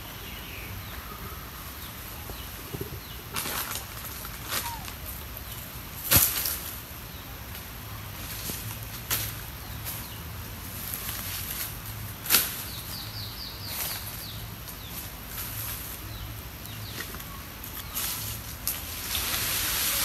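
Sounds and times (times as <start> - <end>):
high insect-like hiss: 17.9 - 20.0.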